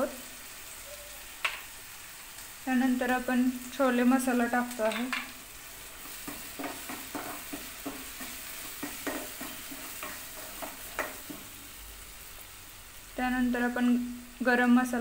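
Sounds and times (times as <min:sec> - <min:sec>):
paste sizzling in oil: 0:00.0 - 0:15.0
spoon scraping pan: 0:04.7 - 0:11.7.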